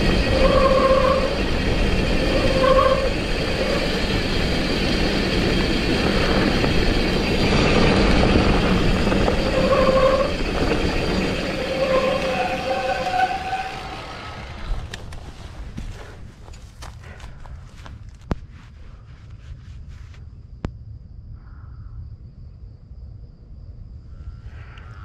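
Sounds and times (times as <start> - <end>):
wind on microphone: 0.0 - 13.3
tyres rumbling on dirt: 0.0 - 18.1.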